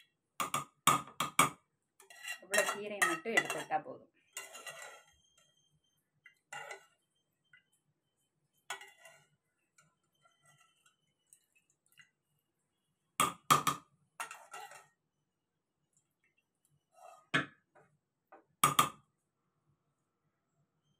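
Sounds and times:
ladle clinking against pot: 0:02.0 - 0:03.7.

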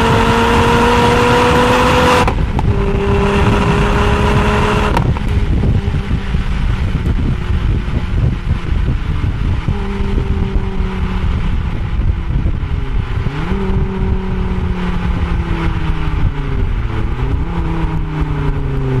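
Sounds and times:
car exhaust at cruise: 0:00.0 - 0:19.0
road and wind rumble: 0:00.0 - 0:19.0.

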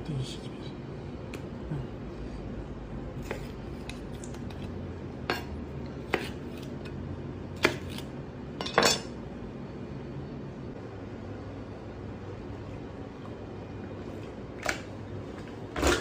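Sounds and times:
knife chopping on cutting board: 0:03.2 - 0:04.7, 0:05.3 - 0:06.8, 0:07.6 - 0:08.1.

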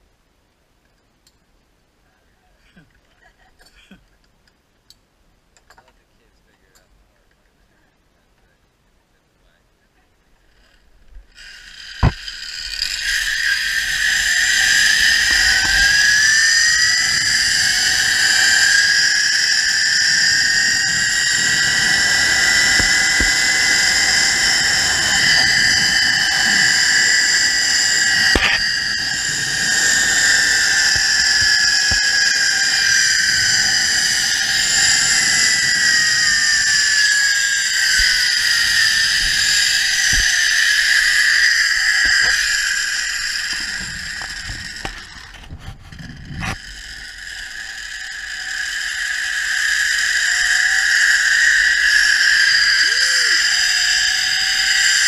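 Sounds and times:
zipline pulleys whining on cable: 0:10.4 - 0:55.0
zipline click: 0:11.3 - 0:55.0
rush of wind: 0:12.8 - 0:48.0.

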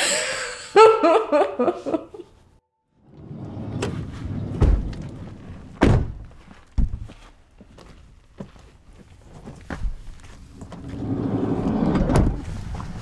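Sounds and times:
deep thumps: 0:03.8 - 0:07.2.

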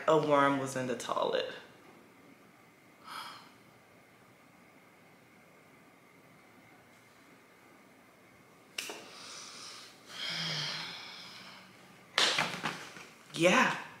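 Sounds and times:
breathy hum: 0:02.9 - 0:03.9, 0:09.0 - 0:11.9.

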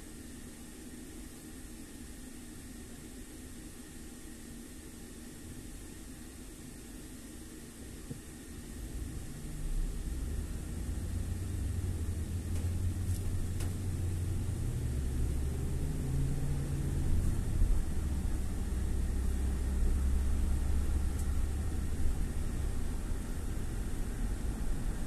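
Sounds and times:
car engine and road rumble: 0:08.7 - 0:25.0.

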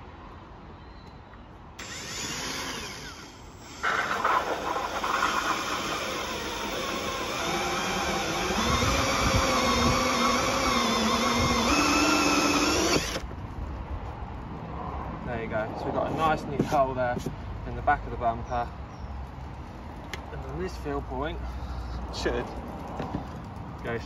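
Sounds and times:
drill hole saw cutting plastic: 0:01.8 - 0:13.3.

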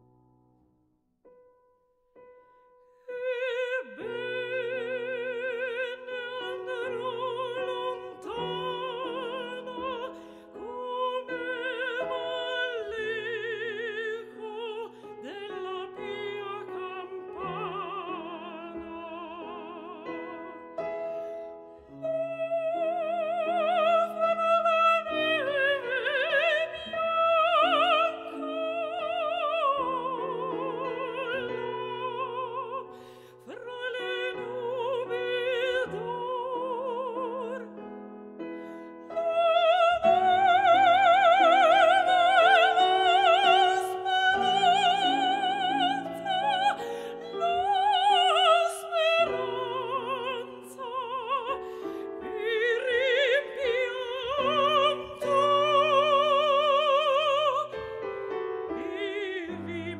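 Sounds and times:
operatic singing: 0:39.1 - 0:59.9.

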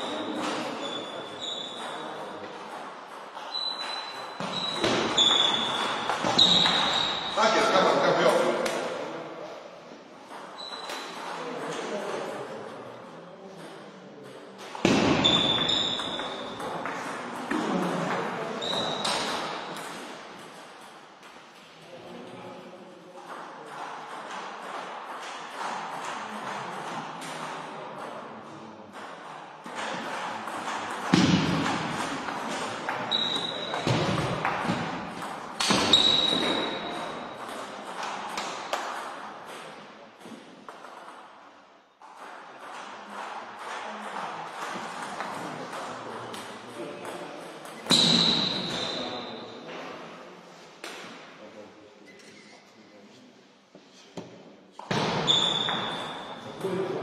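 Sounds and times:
high steady squeak: 0:55.3 - 0:56.4.

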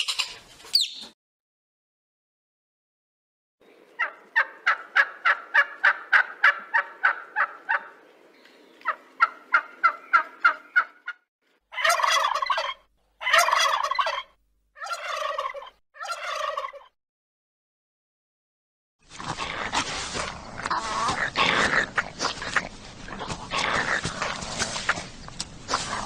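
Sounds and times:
turkey calling: 0:00.0 - 0:01.1, 0:04.0 - 0:07.9, 0:08.8 - 0:16.9
turkey gobbling: 0:04.0 - 0:07.9, 0:08.8 - 0:16.9.

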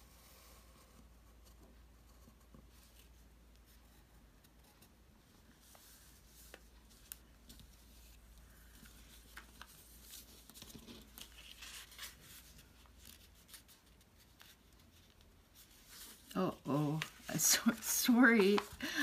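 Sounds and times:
paper rustling and clicking: 0:16.9 - 0:19.0.

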